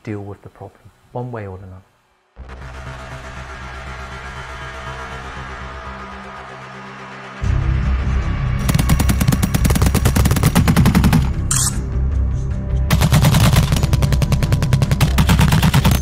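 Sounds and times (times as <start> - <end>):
soundtrack with deep bass: 2.4 - 16.0
machine gun automatic fire: 8.6 - 11.7, 12.9 - 16.0.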